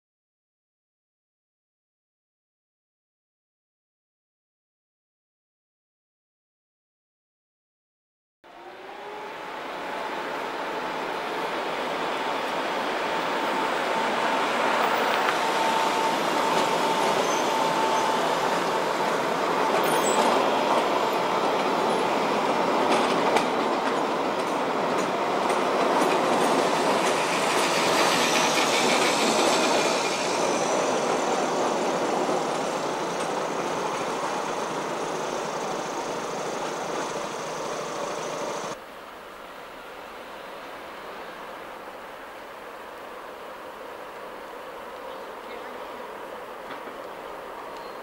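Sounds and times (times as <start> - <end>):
electric tram whine: 8.5 - 38.8
road traffic passing: 8.5 - 38.8
wheels on rails with clicks: 14.8 - 22.0, 22.6 - 31.2, 32.2 - 38.8, 46.6 - 48.0.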